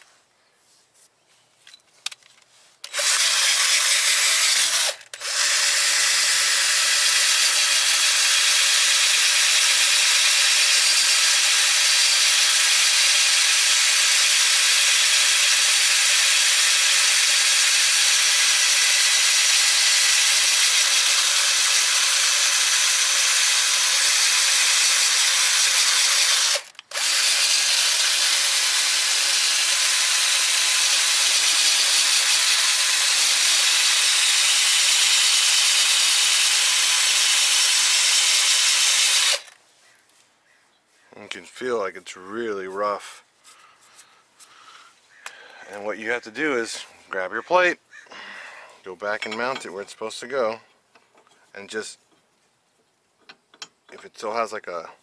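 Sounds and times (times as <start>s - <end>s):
power wire brush scrubbing metal: 2.9s - 39.5s.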